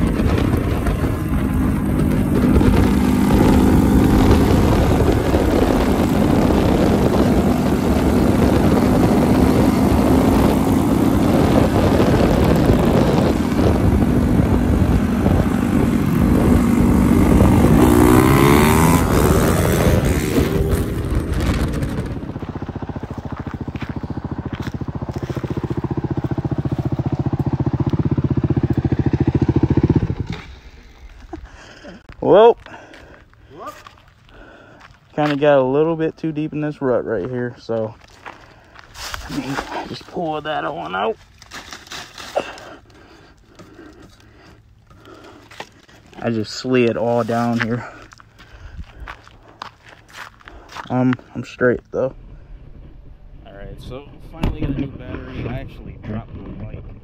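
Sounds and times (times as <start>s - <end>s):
wind noise on microphone: 0.0s - 27.2s, 47.8s - 49.5s
motorcycle engines running: 0.0s - 57.0s.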